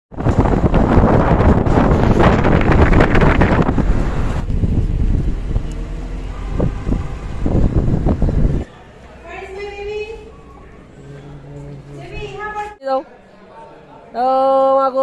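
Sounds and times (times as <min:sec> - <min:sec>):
wind buffeting microphone: 0:00.1 - 0:08.7
car road rumble: 0:00.2 - 0:12.7.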